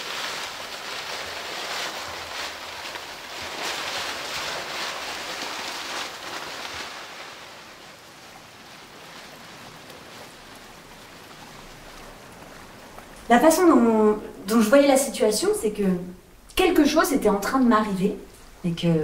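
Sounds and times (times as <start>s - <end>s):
paper crumpling: 0.0s - 10.5s.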